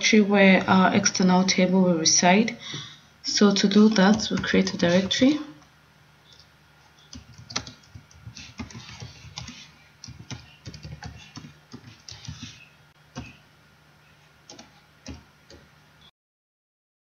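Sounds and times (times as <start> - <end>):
faint steady hum: 0.0 - 16.1
typing on computer keyboard: 7.1 - 13.4, 14.5 - 15.6.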